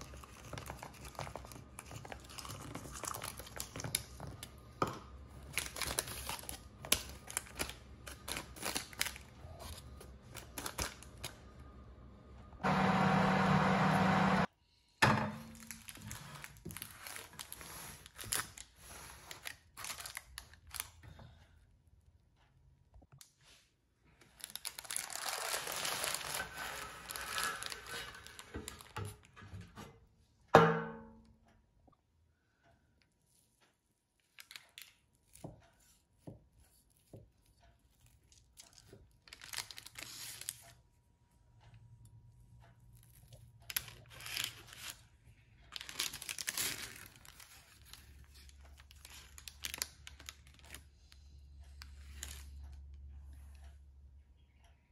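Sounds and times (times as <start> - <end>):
parchment paper rustling: 0.0 - 11.4, 15.5 - 21.0, 24.2 - 29.3, 34.2 - 40.7, 43.1 - 51.2.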